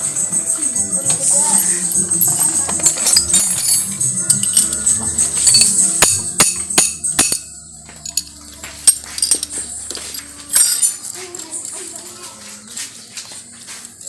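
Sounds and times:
metal tools clinking and rattling: 1.9 - 12.0.

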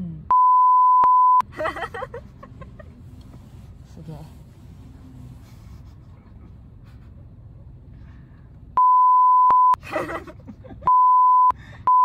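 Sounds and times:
car cabin road hum: 0.0 - 12.0
censor bleep: 0.3 - 1.4, 8.8 - 9.8, 10.9 - 12.0.

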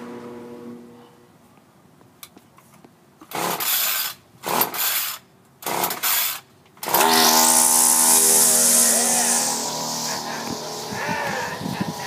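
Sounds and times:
string trimmer pull-start whir: 3.3 - 12.0.

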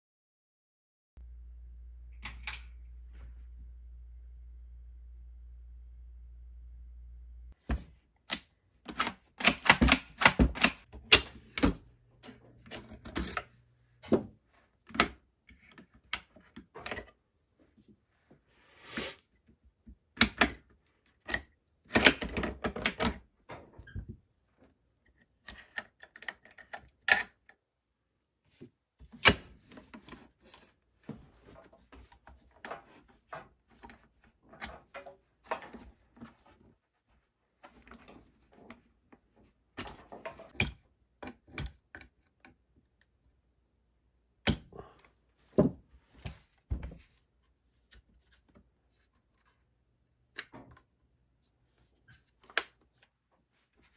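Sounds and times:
metal and plastic parts clicking: 8.3 - 11.8.

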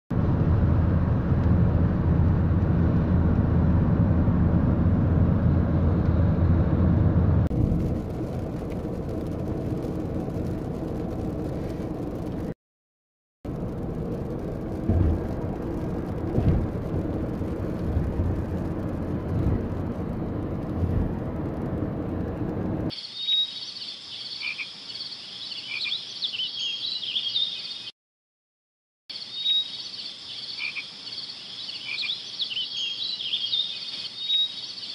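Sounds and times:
car road rumble inside cabin: 0.2 - 12.6, 13.5 - 22.9
chirping and croaking animal calls: 23.0 - 27.9, 29.1 - 34.9.

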